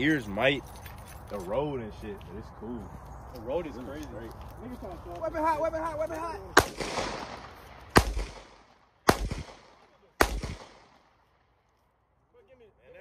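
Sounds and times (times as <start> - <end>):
pistol shots echoing: 6.6 - 11.1.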